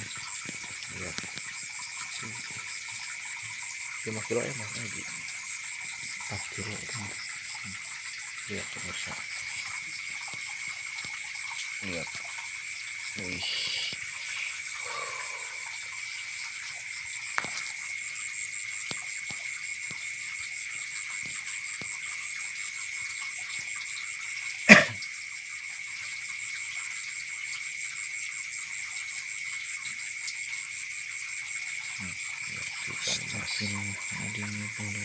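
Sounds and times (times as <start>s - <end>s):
insects and frogs chorus: 0.0s - 35.0s
faint ticks: 18.8s - 20.2s, 20.8s - 22.2s.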